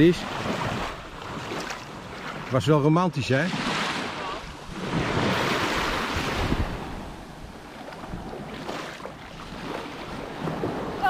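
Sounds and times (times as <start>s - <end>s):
gentle waves on sandy beach: 0.0s - 11.0s
wind rumbling on microphone: 3.6s - 11.0s.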